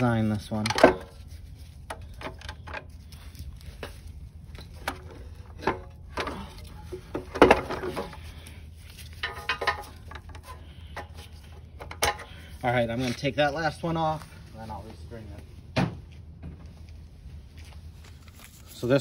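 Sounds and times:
hand tools clicking and scraping: 0.2 - 13.6.

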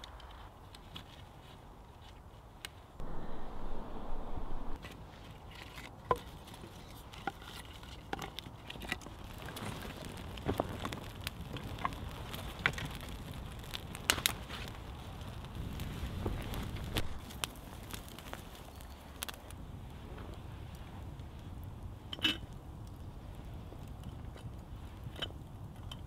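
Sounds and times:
campfire crackling and popping: 6.2 - 26.0.

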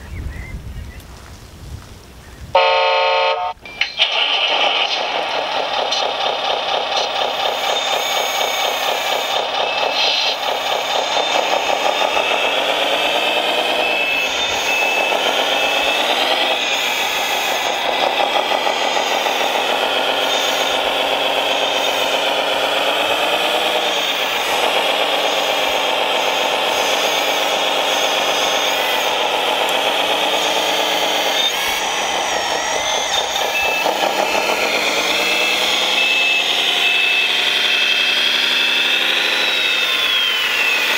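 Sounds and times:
short beeps: 2.6 - 4.1, 13.0 - 16.8
simulated diesel engine revving: 2.6 - 40.9.

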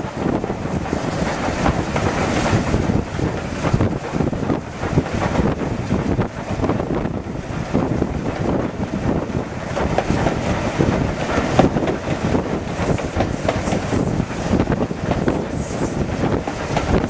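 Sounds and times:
train rumbling on track: 0.0 - 17.0
wind buffeting microphone: 0.0 - 17.0
wheels knocking on track: 7.8 - 17.0.

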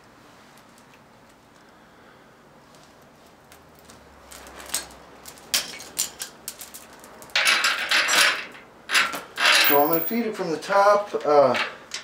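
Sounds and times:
metal chain clinking and rattling: 4.6 - 10.3.

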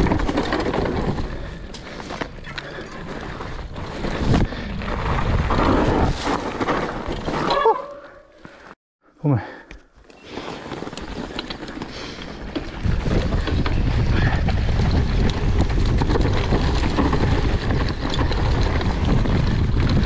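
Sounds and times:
bike clicks and rattles: 0.0 - 7.6, 9.8 - 20.0
bike tyres rumbling on dirt: 0.0 - 8.7, 10.2 - 20.0
wind buffeting microphone: 12.7 - 20.0.

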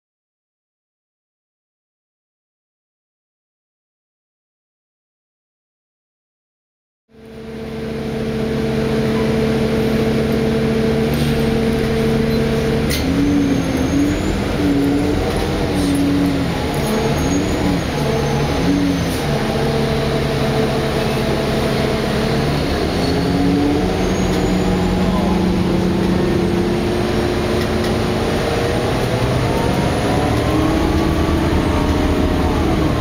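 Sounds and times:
diesel bus engine idling: 7.2 - 33.0.

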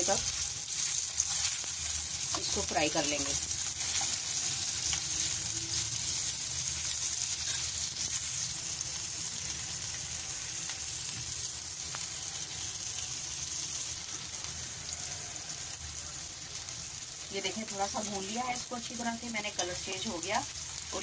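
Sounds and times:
chicken sizzling in frying pan: 0.0 - 21.0.

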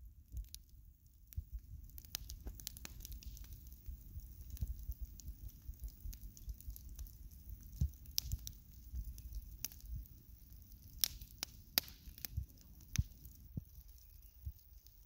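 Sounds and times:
bonfire crackling and popping: 0.0 - 15.0
low fire rumble: 0.0 - 15.0.

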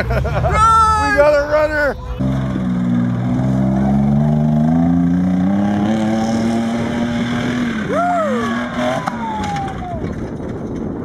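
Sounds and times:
person yelling: 0.4 - 2.2, 7.9 - 10.0
truck engine under throttle: 1.4 - 11.0.

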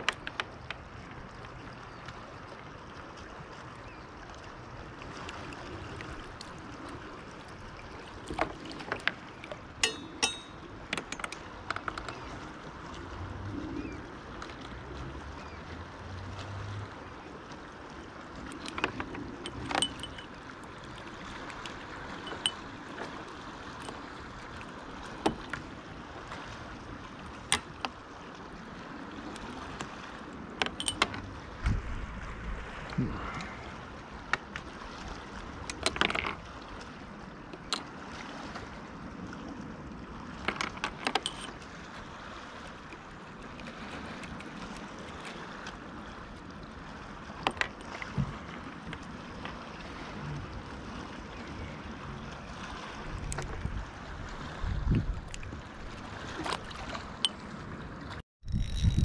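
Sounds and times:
low water and wind noise: 0.0 - 59.0
short metallic ring: 9.8 - 11.4, 19.4 - 20.3, 22.2 - 22.6, 30.7 - 31.2, 41.2 - 41.5
sharp clicks and knocks: 9.8 - 12.2, 30.6 - 31.3.

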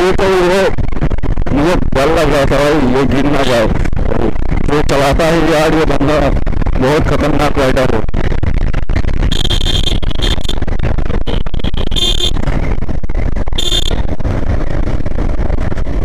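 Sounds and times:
motorbike and road rumble: 0.0 - 16.0
wind buffeting microphone: 8.0 - 16.0
short high-pitched beeps: 9.3 - 10.6, 11.2 - 12.4, 13.6 - 14.0.

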